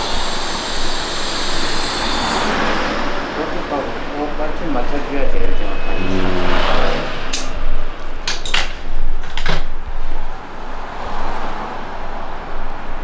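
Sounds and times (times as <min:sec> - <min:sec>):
air hiss from tyre inflator: 0:00.0 - 0:02.7
workshop background noise: 0:00.0 - 0:10.2.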